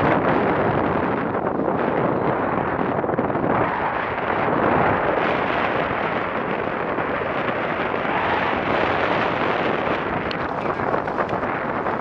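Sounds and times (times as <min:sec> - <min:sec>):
wind buffeting microphone: 0:00.0 - 0:12.0
breaking surf: 0:02.4 - 0:12.0.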